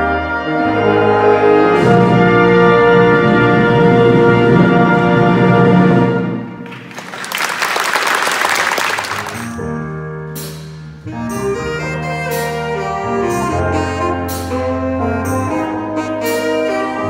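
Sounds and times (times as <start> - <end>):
wind band playing chords: 0.0 - 17.0
applause: 6.6 - 9.6.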